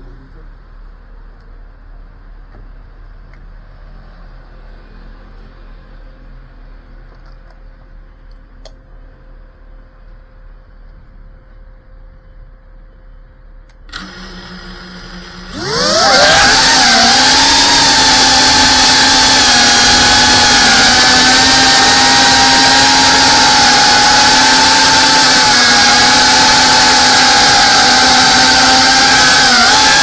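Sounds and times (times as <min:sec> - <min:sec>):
click: 0:03.3 - 0:03.5, 0:08.2 - 0:08.8, 0:13.6 - 0:14.1
drone motors whining: 0:13.7 - 0:30.0.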